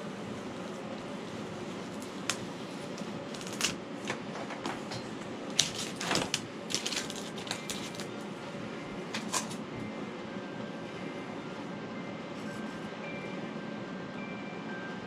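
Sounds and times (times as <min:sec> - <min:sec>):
foam board crackling: 0:00.0 - 0:04.1, 0:05.5 - 0:08.2
steady background hum: 0:00.0 - 0:15.0.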